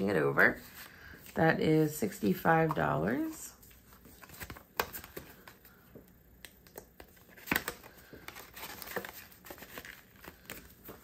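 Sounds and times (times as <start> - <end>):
banknotes and plastic rustling: 6.5 - 11.0.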